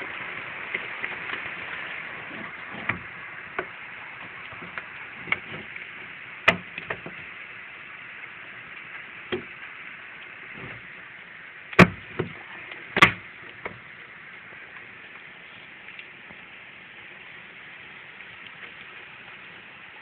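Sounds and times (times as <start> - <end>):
heavy rain hiss: 0.0 - 20.0
sharp knocks: 11.8 - 12.4, 13.0 - 13.8.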